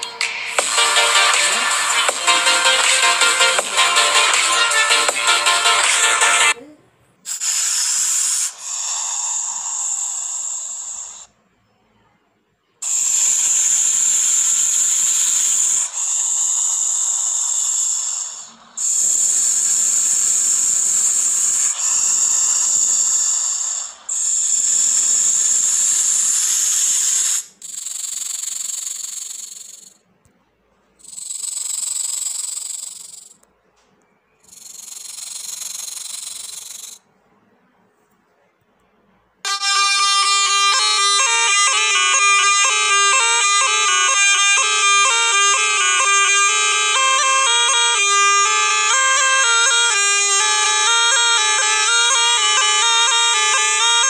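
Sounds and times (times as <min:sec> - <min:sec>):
snake hissing: 0:00.0 - 0:11.4, 0:12.8 - 0:30.0, 0:31.0 - 0:33.4, 0:34.5 - 0:37.0.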